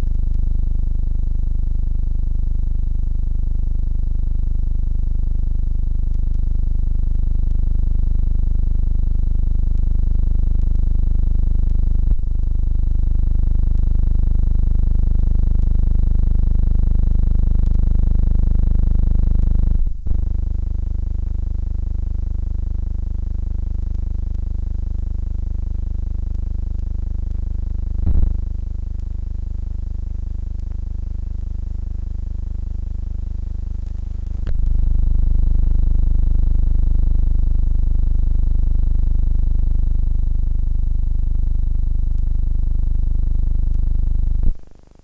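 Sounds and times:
low electrical hum: 0:00.0 - 0:00.6, 0:19.8 - 0:20.9, 0:28.0 - 0:29.3, 0:33.5 - 0:35.6, 0:43.6 - 0:45.0.

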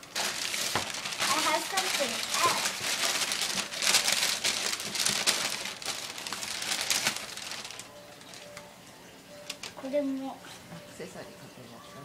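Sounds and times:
tissue paper rustling: 0:00.0 - 0:08.6.

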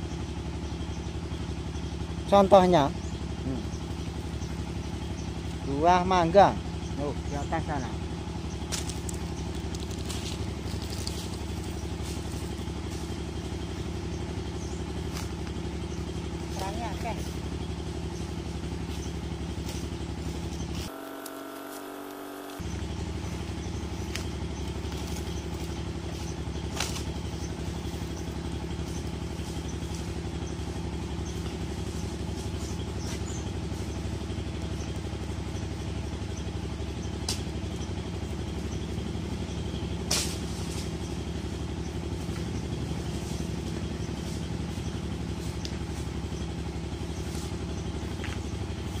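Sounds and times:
engine idling: 0:00.0 - 0:49.0.

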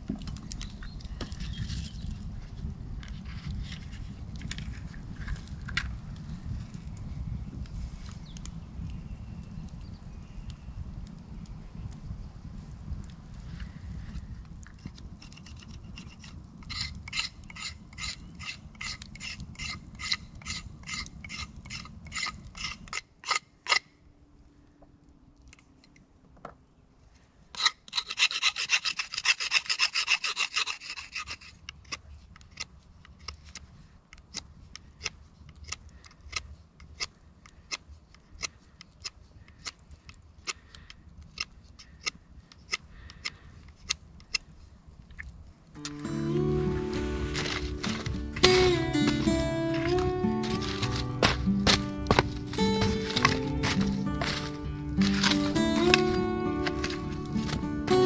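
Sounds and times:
knife scraping wooden stick: 0:14.8 - 0:23.9, 0:27.5 - 0:33.7, 0:46.8 - 0:58.0.

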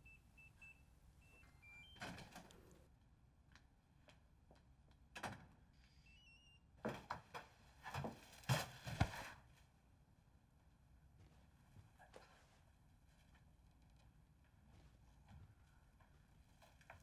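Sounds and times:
short electronic beeps: 0:00.0 - 0:02.4.

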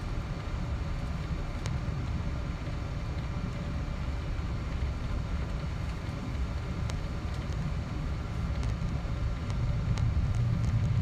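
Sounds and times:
jet engines rumbling: 0:00.0 - 0:11.0
faint clicks: 0:08.5 - 0:11.0.

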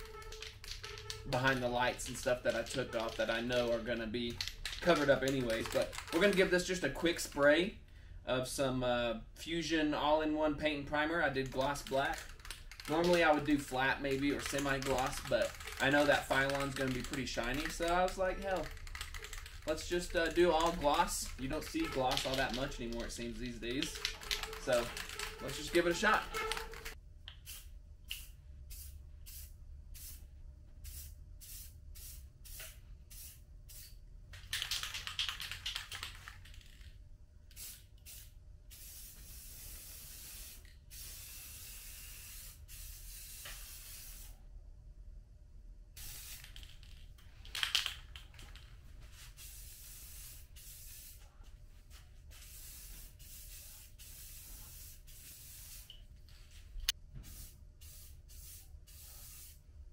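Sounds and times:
aerosol can spraying: 0:11.6 - 0:30.2, 0:37.5 - 0:44.3, 0:46.0 - 0:46.9, 0:49.3 - 0:51.2, 0:52.3 - 0:56.0, 0:57.2 - 0:59.6.

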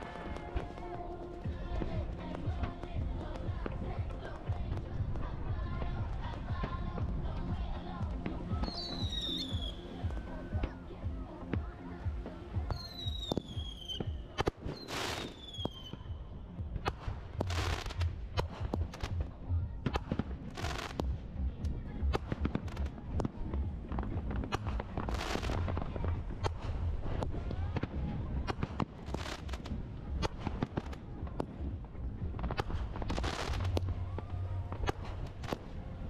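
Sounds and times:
fireworks bangs: 0:00.0 - 0:07.3, 0:32.4 - 0:35.8.

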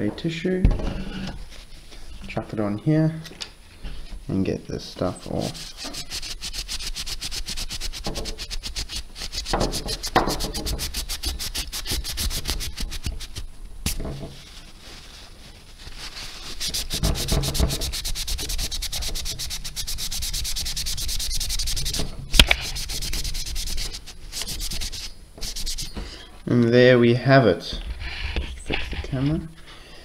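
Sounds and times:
tissue scrubbing on metal: 0:05.2 - 0:13.5, 0:14.2 - 0:26.0.

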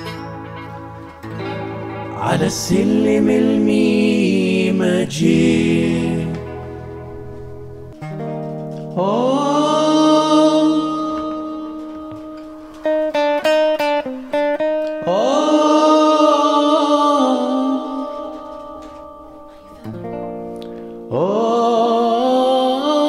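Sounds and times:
electric guitar chords: 0:00.0 - 0:23.0.

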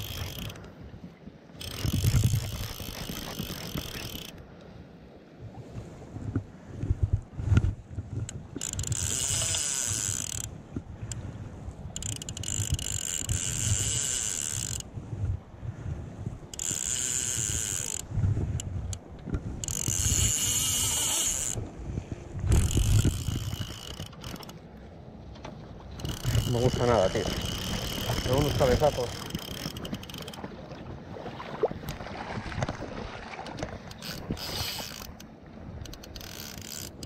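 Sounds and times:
fishing reel drag buzzing: 0:00.0 - 0:00.6, 0:01.6 - 0:04.4, 0:08.6 - 0:10.5, 0:11.9 - 0:14.9, 0:16.5 - 0:18.1, 0:19.6 - 0:21.6, 0:22.5 - 0:24.6, 0:26.0 - 0:30.4, 0:33.9 - 0:35.2, 0:35.8 - 0:37.0.

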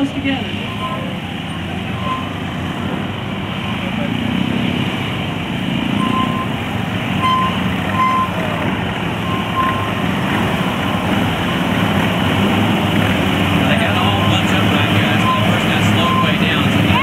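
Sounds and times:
motorcycle engines rumbling: 0:00.0 - 0:17.0
short high beeps: 0:00.6 - 0:01.2, 0:01.9 - 0:02.4, 0:06.0 - 0:06.6, 0:07.2 - 0:08.4, 0:15.0 - 0:17.0.

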